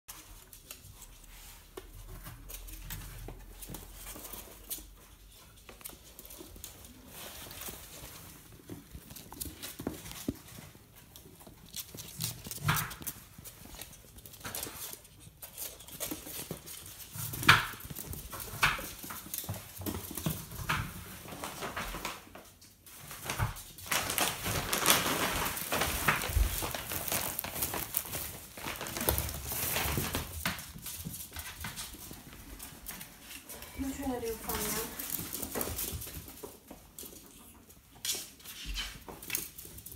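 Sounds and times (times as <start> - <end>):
ferrets scampering on tile: 0.1 - 39.9
plastic bag rustling: 5.9 - 36.9.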